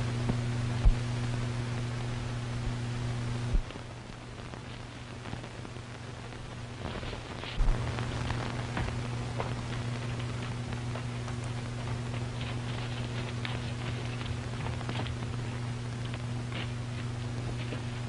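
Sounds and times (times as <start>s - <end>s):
film soundtrack hiss and hum: 0.0s - 18.0s
horse hooves clopping: 6.8s - 18.0s.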